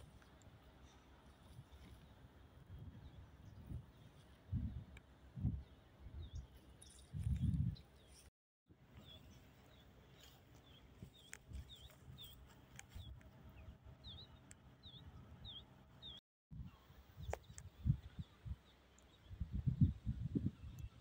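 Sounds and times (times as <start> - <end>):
small bird chirping: 9.0 - 21.0.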